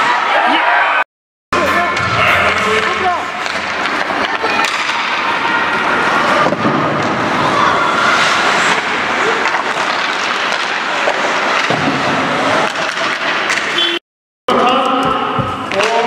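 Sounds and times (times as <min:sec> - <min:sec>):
sticks and puck clattering: 0:02.0 - 0:13.9, 0:14.6 - 0:16.0
skates scraping ice: 0:02.6 - 0:13.8.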